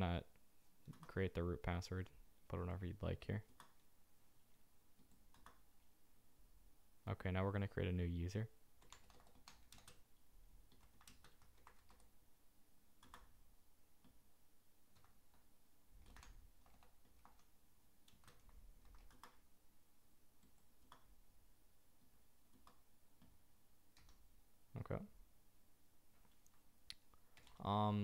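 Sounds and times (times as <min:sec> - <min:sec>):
keyboard keystrokes: 0:05.0 - 0:05.6, 0:08.8 - 0:10.0, 0:10.7 - 0:12.1, 0:13.0 - 0:13.3, 0:16.0 - 0:19.4, 0:23.9 - 0:24.2.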